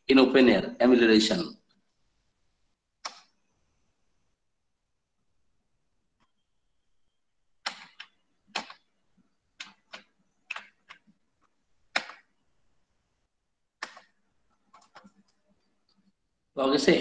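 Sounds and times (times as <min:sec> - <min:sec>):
computer keyboard clicks: 0:03.0 - 0:03.4, 0:07.6 - 0:08.9, 0:09.6 - 0:11.1, 0:11.9 - 0:12.3, 0:13.8 - 0:15.4
mouse clicks: 0:03.0 - 0:03.4, 0:13.8 - 0:15.3.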